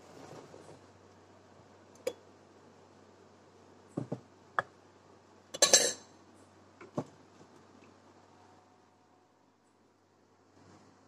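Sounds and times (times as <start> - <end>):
ceramic knocks and clinks: 5.6 - 6.0
ceramic clatter: 5.6 - 6.1.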